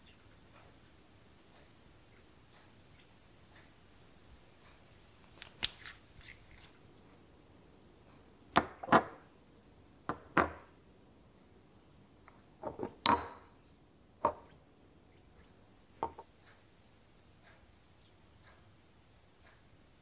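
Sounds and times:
glass bottles clinking on surface: 13.0s - 13.6s.

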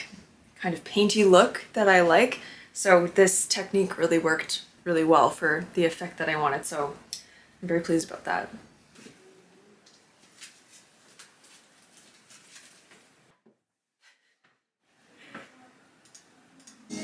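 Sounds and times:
paper cards rustling: 9.9s - 13.2s.

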